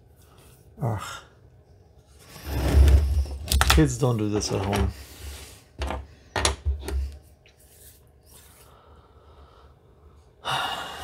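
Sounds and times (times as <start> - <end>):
faint handling sounds: 1.9 - 6.2, 6.8 - 8.8
metal tools knocking on wooden desk: 5.8 - 7.0.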